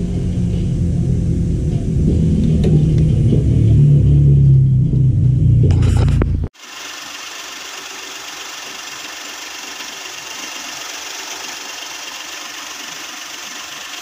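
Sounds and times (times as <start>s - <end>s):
car engine idling: 5.6s - 14.0s.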